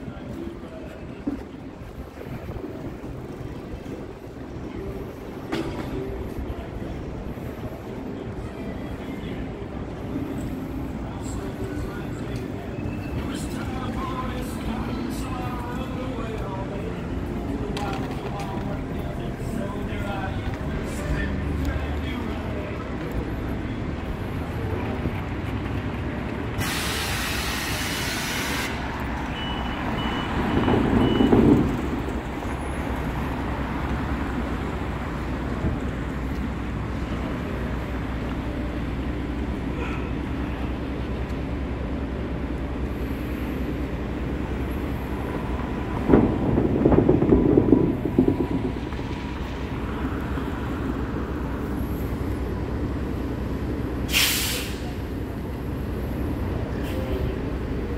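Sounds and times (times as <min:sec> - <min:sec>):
traffic rumble: 0:00.0 - 0:57.9
vehicles passing: 0:00.0 - 0:57.9
hiss: 0:26.6 - 0:28.8, 0:54.1 - 0:55.0.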